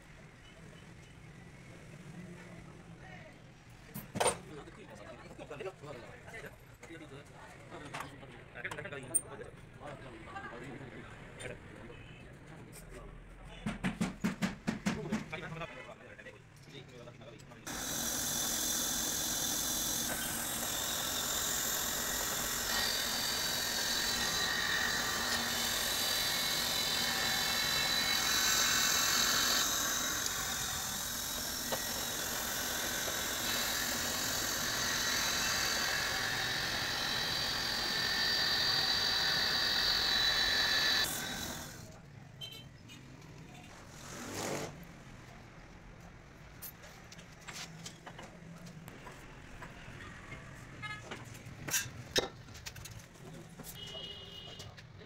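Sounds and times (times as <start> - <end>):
machine engine running: 17.7 - 41.8.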